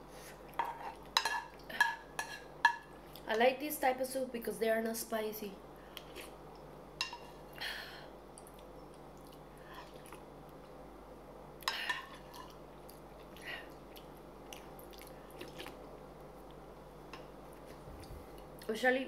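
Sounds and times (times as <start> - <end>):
soft chewing: 8.3 - 10.8, 11.6 - 18.7.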